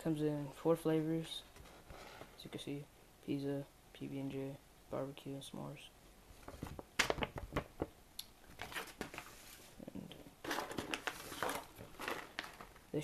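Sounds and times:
paper flyer clicks and knocks: 6.5s - 7.9s
rustling of foil snack pouches: 10.4s - 13.0s.

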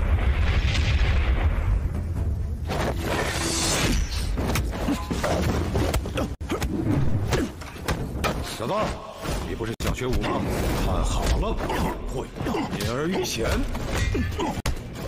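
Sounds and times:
loud crashing boom: 0.0s - 2.6s.

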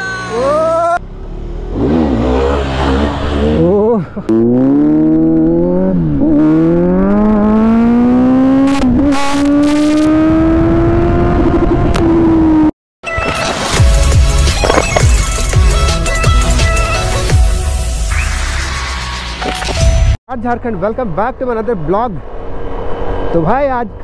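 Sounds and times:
motorcycle engine accelerating: 1.0s - 12.7s.

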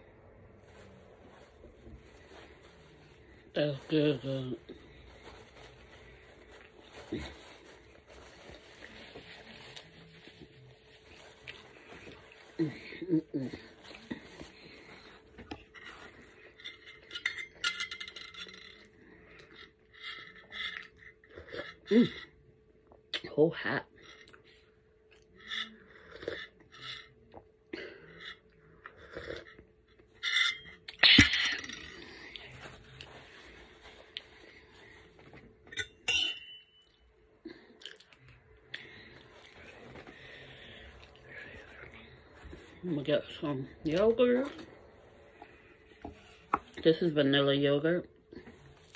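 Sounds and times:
person swallowing and gulping: 37.7s - 38.4s
person chewing food: 37.7s - 42.2s.

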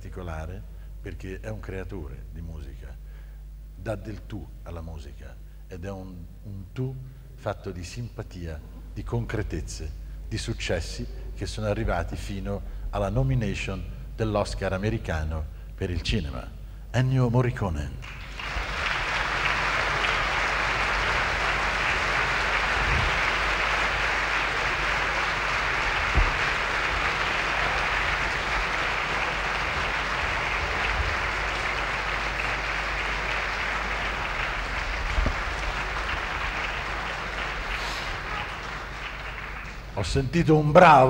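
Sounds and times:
audience applauding: 18.0s - 40.4s.

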